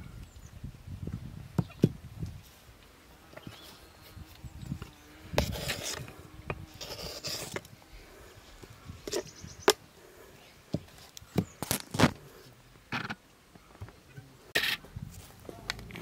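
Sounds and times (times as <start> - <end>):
rustling and scraping food: 3.3 - 13.2.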